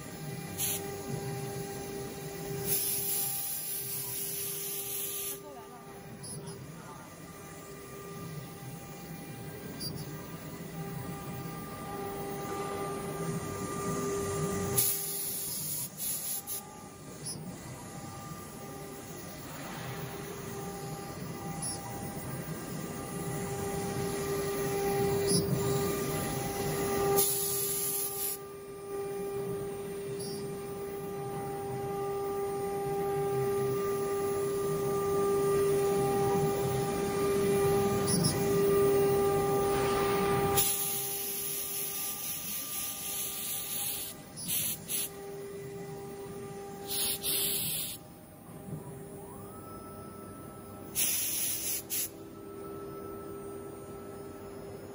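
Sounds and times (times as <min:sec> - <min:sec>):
router spindle whine: 0:16.6 - 0:48.0
bit cutting hiss: 0:40.6 - 0:45.1, 0:46.8 - 0:48.0.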